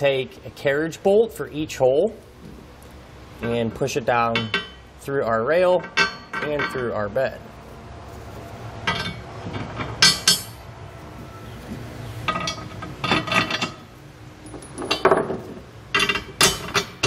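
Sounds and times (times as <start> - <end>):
steel bolts clinking on metal: 3.4 - 4.8, 5.7 - 7.0, 8.8 - 10.6, 12.3 - 13.8, 14.5 - 17.0.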